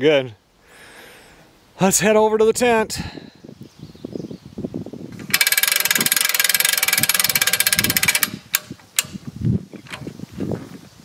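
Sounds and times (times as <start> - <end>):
ratchet crank clicking: 5.2 - 9.2
metal clicks and knocks: 5.2 - 10.2.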